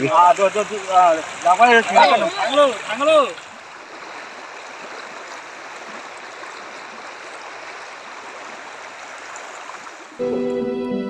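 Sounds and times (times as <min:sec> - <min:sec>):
floodwater rushing: 0:00.0 - 0:11.0
instrumental music: 0:10.2 - 0:11.0.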